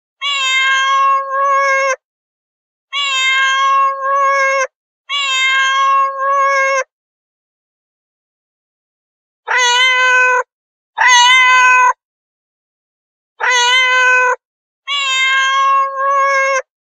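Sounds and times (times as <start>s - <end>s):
cat meowing: 0.2s - 2.0s, 2.9s - 6.9s, 9.5s - 12.0s, 13.4s - 16.7s.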